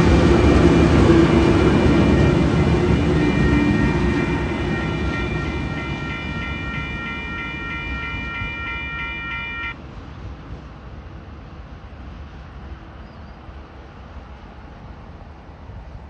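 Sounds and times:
diesel locomotive rumble: 0.0s - 16.0s
level crossing bell ringing: 3.4s - 9.8s.

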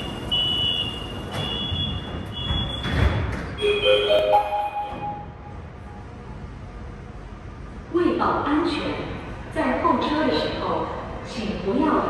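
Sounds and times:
high electronic warning beeping: 0.0s - 2.9s, 3.6s - 5.5s
rising public-address chime: 3.6s - 5.6s.

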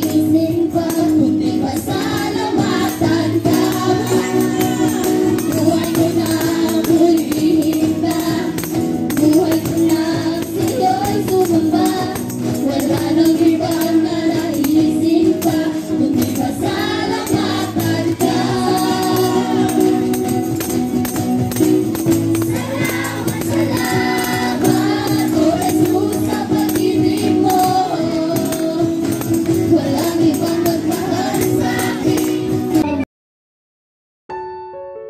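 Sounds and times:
voices singing together: 0.0s - 20.9s, 22.0s - 32.8s
light percussion: 0.0s - 32.9s
acoustic guitars: 0.0s - 33.0s.

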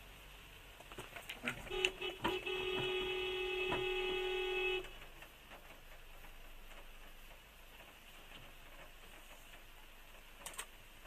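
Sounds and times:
vehicle horn: 1.6s - 4.9s.

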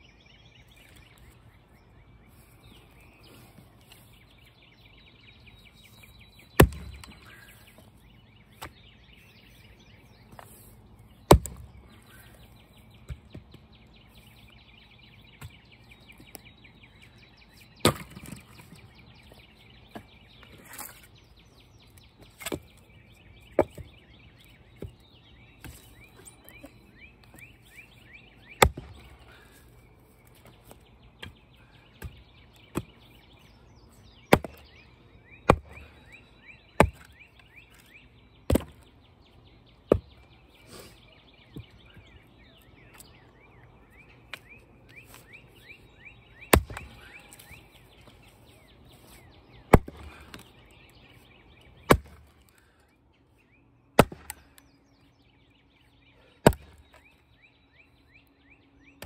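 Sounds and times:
birds chirping: 0.0s - 59.0s
axe splitting firewood: 6.5s - 7.8s, 10.3s - 12.4s, 17.7s - 18.8s, 23.4s - 27.4s, 28.5s - 29.6s, 30.3s - 33.1s, 34.3s - 34.8s, 35.4s - 36.0s, 36.7s - 37.9s, 38.5s - 38.9s, 39.8s - 40.9s, 46.4s - 48.1s, 49.6s - 50.7s, 51.7s - 52.8s, 54.0s - 54.6s, 56.4s - 57.2s.

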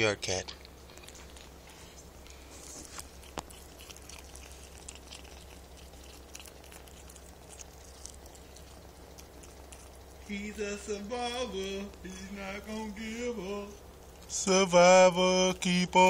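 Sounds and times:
kitten chewing crunchy clicks: 0.5s - 10.6s.

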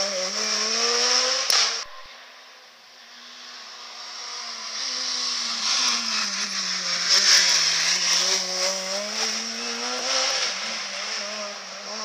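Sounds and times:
rally car engine: 0.0s - 12.0s
rush of noise: 1.4s - 8.0s.

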